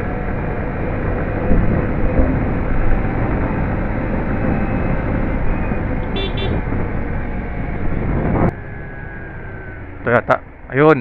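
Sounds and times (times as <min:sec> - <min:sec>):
wind noise on microphone: 0:00.2 - 0:08.6.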